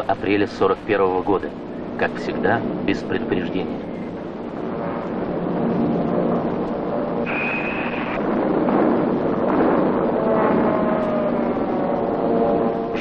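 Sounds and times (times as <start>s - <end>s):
bomber aircraft roar: 0.0s - 13.0s
high whistle: 7.3s - 8.2s.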